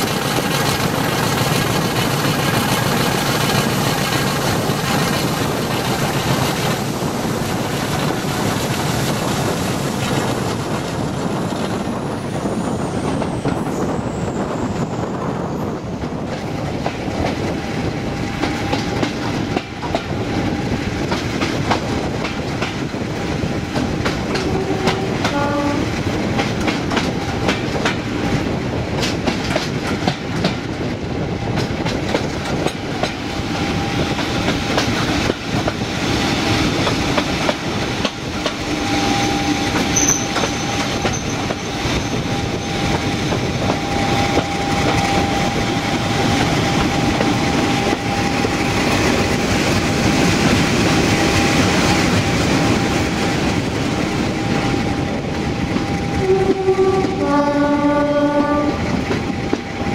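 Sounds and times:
diesel locomotive engine drone: 0:00.0 - 0:59.9
wheels clicking on rail joints: 0:36.4 - 0:51.5
brief squeal: 0:38.8 - 0:42.8.

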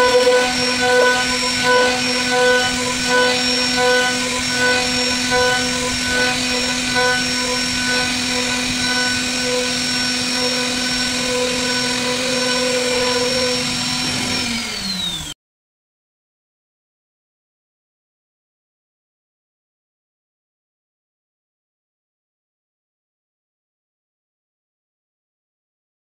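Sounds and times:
pulsing mid-pitched tones: 0:00.0 - 0:14.5
router spindle whine: 0:00.0 - 0:15.4.

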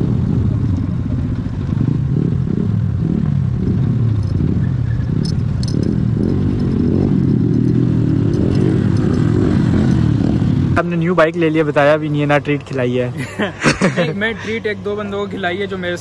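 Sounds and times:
motorcycle engine running: 0:00.0 - 0:12.1
sharp metallic clicks: 0:03.7 - 0:10.5.

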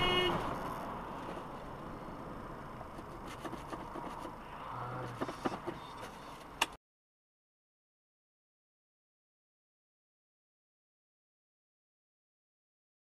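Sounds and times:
car road and engine noise: 0:00.0 - 0:06.8.

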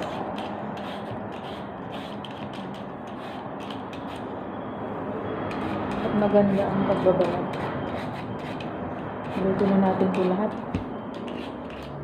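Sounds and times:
vegetable peeler scraping squash: 0:00.0 - 0:04.3, 0:11.2 - 0:12.0.

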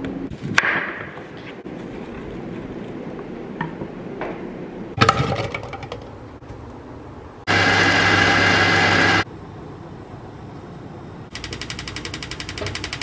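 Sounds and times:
blender motor running: 0:07.5 - 0:09.2.

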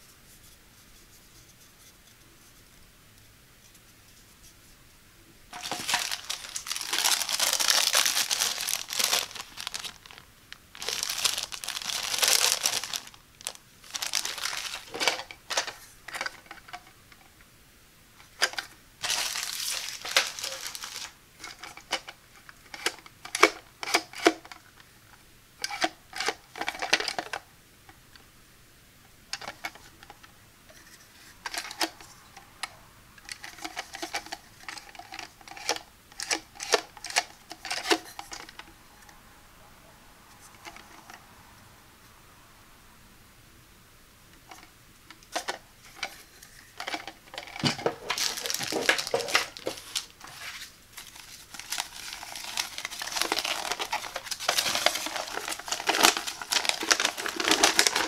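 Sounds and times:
plastic bag crinkling: 0:05.5 - 0:16.8, 0:18.2 - 0:24.4, 0:44.5 - 0:58.0.

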